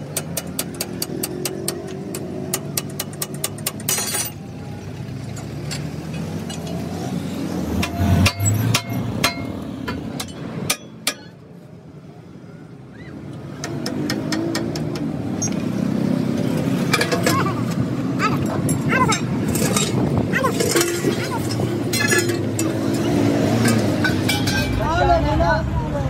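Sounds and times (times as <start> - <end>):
steel tools clinking on metal: 1.7 - 4.4, 18.3 - 24.8.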